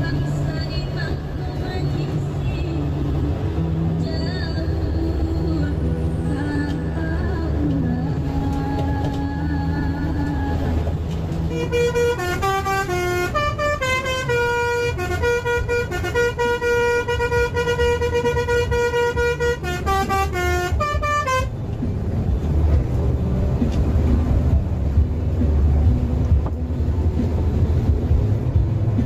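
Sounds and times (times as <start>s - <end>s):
bus engine drone: 0.0s - 29.0s
bus horn playing a tune: 11.4s - 21.7s.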